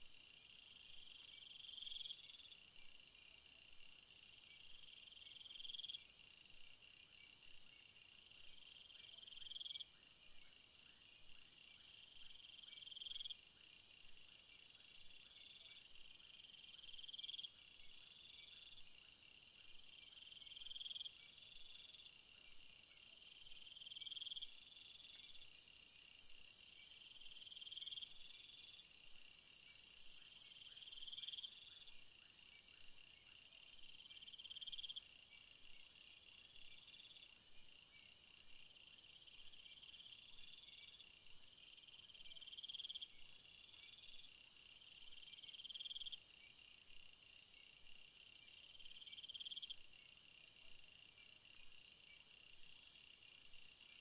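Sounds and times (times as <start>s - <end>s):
high trilling insect chorus: 10.8s - 54.0s.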